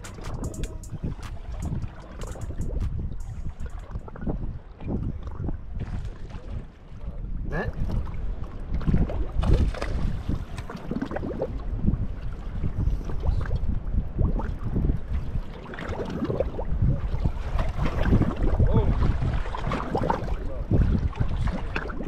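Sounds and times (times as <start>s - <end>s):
waves slapping against boat hull: 0.0s - 22.0s
wind rumbling on microphone: 0.0s - 22.0s.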